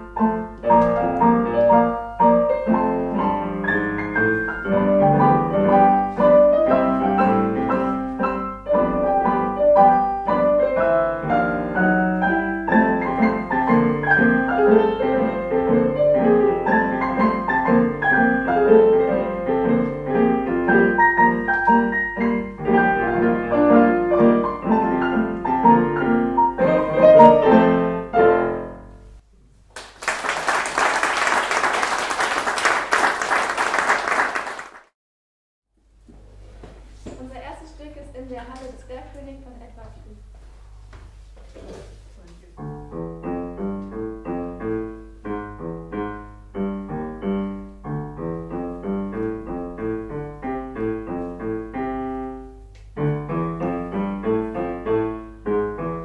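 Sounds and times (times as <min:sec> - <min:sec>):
piano music: 0:00.0 - 0:29.2, 0:42.6 - 0:56.0
audience applause: 0:29.7 - 0:34.9.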